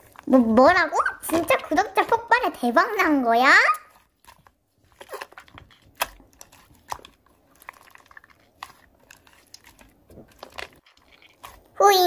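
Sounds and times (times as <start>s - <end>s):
slime squished by hand: 3.7s - 11.8s.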